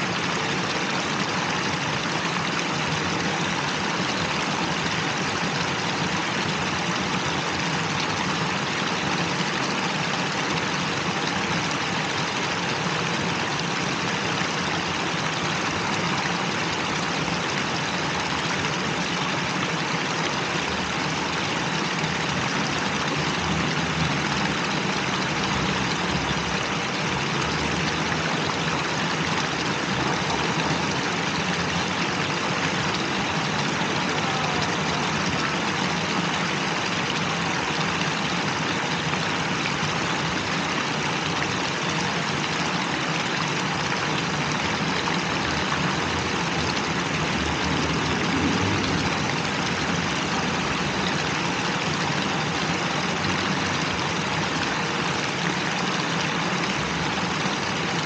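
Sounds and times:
fountain water splashing: 0.0 - 58.0.

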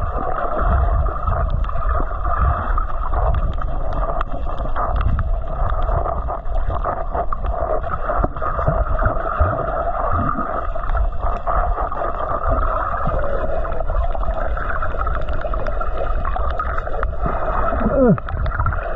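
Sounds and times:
underwater water rumble: 0.0 - 18.9
faint clicks: 3.1 - 7.6, 13.1 - 17.3.

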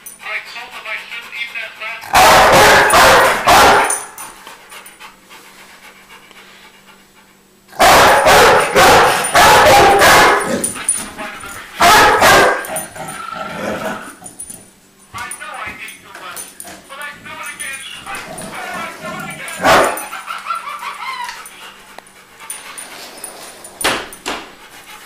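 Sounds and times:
dog barking: 2.1 - 4.2, 7.8 - 10.8, 11.8 - 12.8, 19.4 - 20.1.

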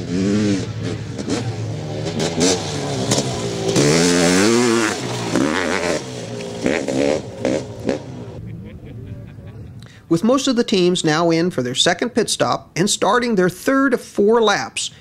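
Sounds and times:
motorcycle engine revving past: 0.0 - 8.4.

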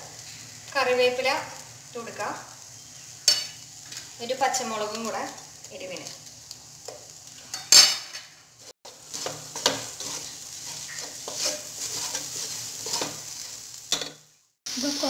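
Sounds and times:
oil sizzling: 0.0 - 15.0
wooden spatula stirring and scraping: 8.6 - 14.2.

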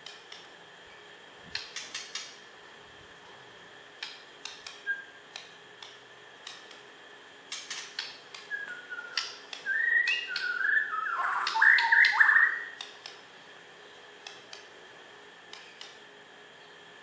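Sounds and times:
bird clicking: 1.5 - 2.4, 4.0 - 6.8, 7.5 - 10.7, 11.4 - 13.2, 15.5 - 16.0
bird whistling: 4.8 - 5.2, 8.5 - 12.8.

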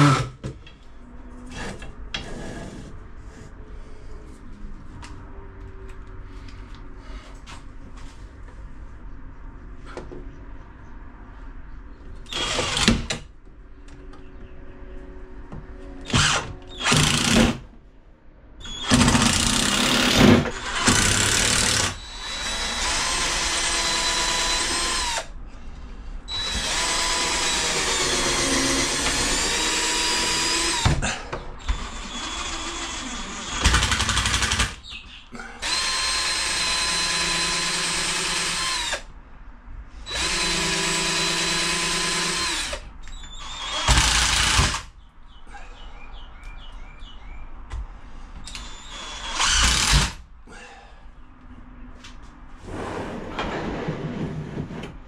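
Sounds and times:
cordless drill whining: 12.3 - 13.0, 16.0 - 17.6, 18.6 - 25.3, 26.3 - 31.0, 31.6 - 35.0, 35.6 - 39.0, 40.1 - 44.9, 48.4 - 50.2.

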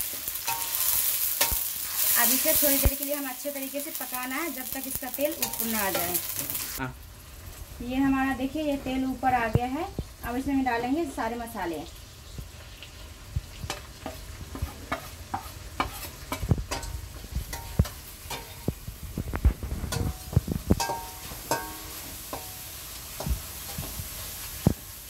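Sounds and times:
metal spatula scraping a pan: 0.0 - 2.9, 4.7 - 6.8, 13.7 - 18.8, 19.5 - 24.7
soft sizzle: 0.0 - 25.0.

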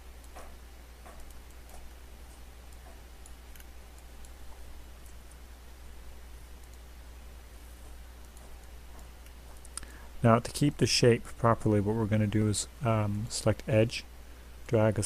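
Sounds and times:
low electrical hum: 0.0 - 15.0
faint mouse clicks: 0.2 - 5.4, 6.6 - 6.9.

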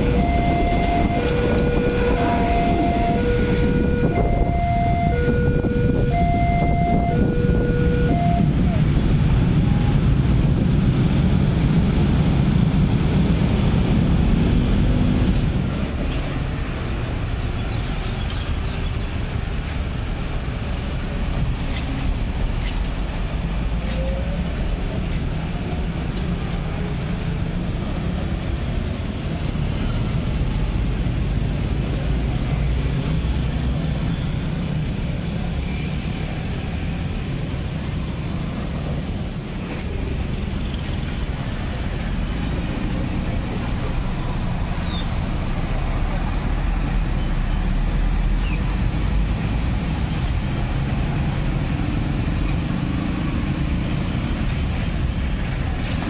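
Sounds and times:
motorcycles and cars over tracks: 0.0 - 56.0.

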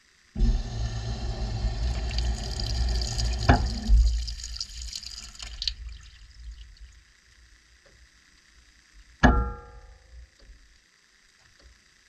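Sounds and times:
water rushing into washing machine: 0.4 - 7.0
deep rumble: 0.4 - 7.1.

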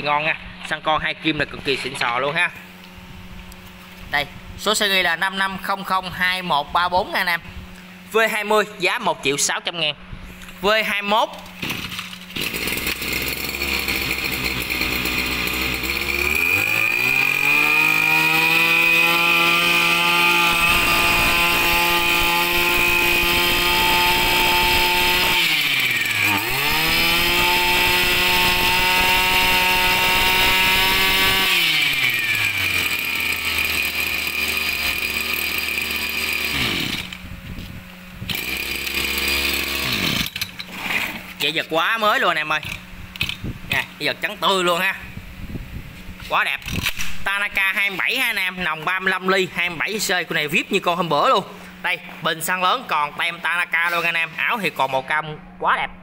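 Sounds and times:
brush cutter engine revving: 11.3 - 44.8, 46.2 - 51.3.

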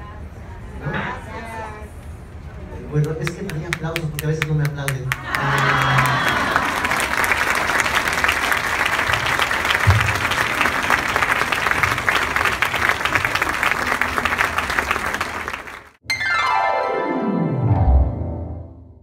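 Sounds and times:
audience applauding: 3.1 - 16.0
musical sweep falling in pitch: 16.0 - 18.8.

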